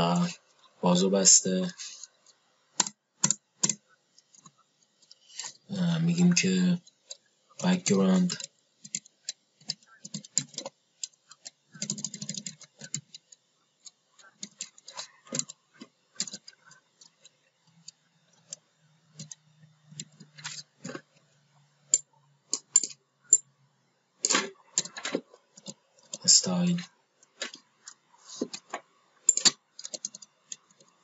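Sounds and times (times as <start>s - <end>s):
faint low hum: 0.0s - 31.0s
computer keyboard keystrokes: 11.8s - 13.2s.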